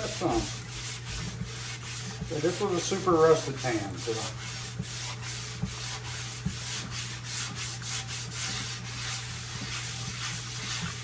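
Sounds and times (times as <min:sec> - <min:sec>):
scouring pad scrubbing skillet: 0:00.0 - 0:11.0.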